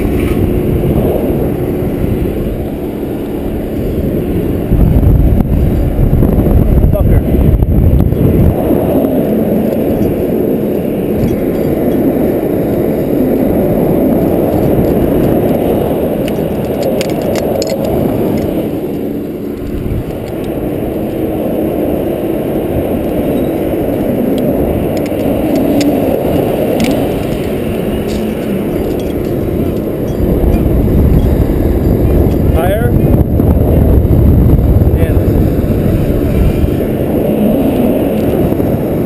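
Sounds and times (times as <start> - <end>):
engine running: 0.0 - 39.0
chain clinking: 25.0 - 31.4.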